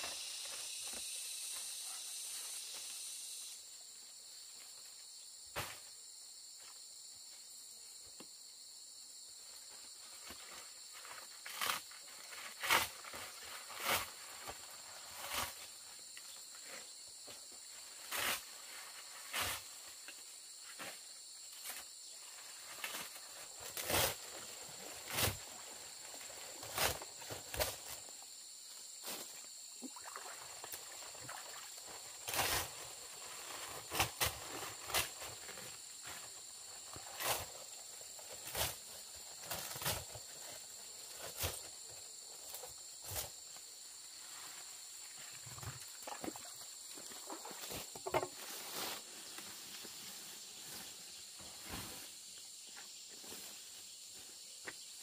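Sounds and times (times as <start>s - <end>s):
high-pitched insect drone: 0.0s - 3.8s.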